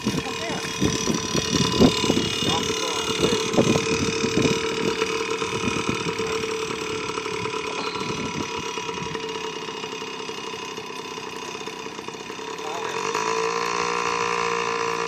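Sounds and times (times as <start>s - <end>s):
small dirt bike engine: 0.0s - 15.0s.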